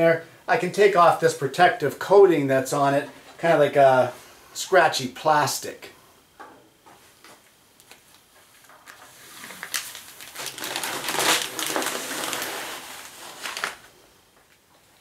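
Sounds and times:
plastic film peeling: 7.8 - 14.0.

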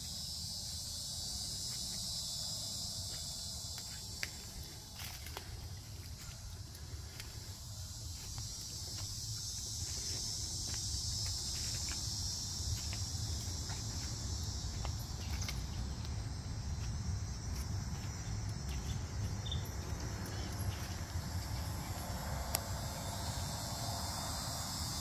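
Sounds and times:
high-pitched insect chorus: 0.0 - 25.0
footsteps on trail: 3.1 - 22.8.

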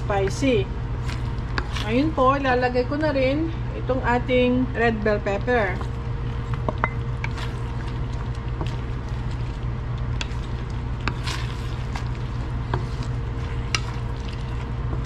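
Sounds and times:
steady low hum: 0.0 - 15.0
wooden spatula stirring sauce: 1.0 - 2.1, 5.6 - 15.0.

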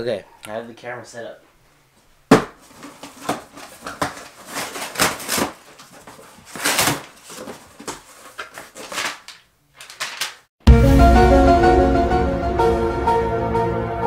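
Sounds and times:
cardboard and packing rustling: 2.3 - 10.5
cardboard flaps scraping: 2.6 - 10.5.

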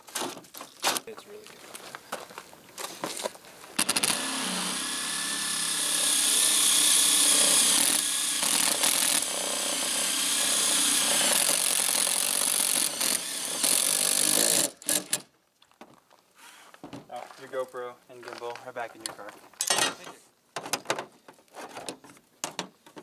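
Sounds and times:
cordless drill boring metal: 3.8 - 15.1.

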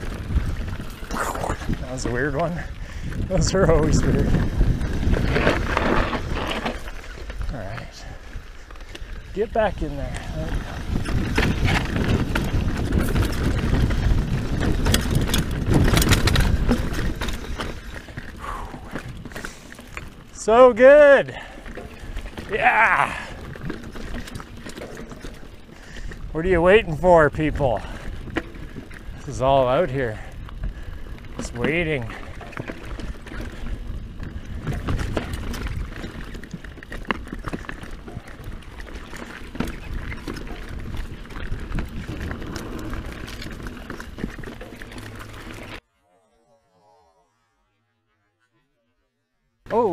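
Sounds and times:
wind rumbling on microphone: 0.0 - 20.4, 21.3 - 45.8
tyres rolling over dirt and rocks: 0.0 - 45.8
bike rattling clicks: 10.0 - 20.4, 27.4 - 45.8
chain and frame rattling: 21.4 - 25.8.

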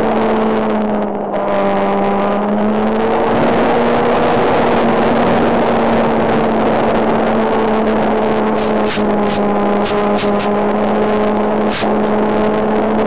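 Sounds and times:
model airplane engine buzzing: 3.4 - 13.0
wide hiss: 8.4 - 10.6, 11.3 - 12.2.

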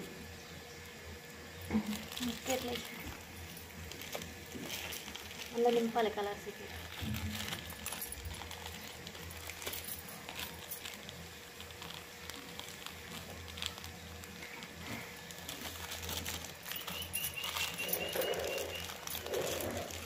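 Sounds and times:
plastic packet rustling: 1.5 - 20.0
high chirps: 16.7 - 19.0.

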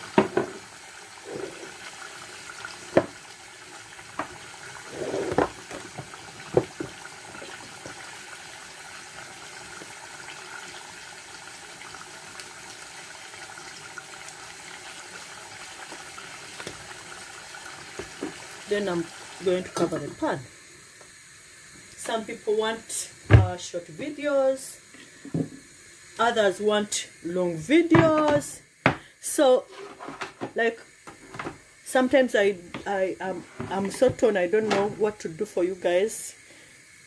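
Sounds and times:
meat sizzling in a saucepan: 0.0 - 37.0.

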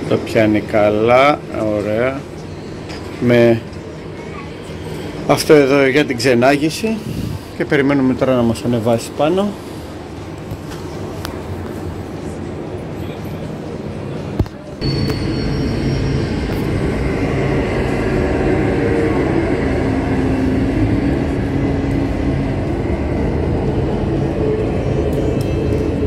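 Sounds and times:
lift rumbling and humming: 0.0 - 26.0
brief high tone: 14.8 - 22.5.

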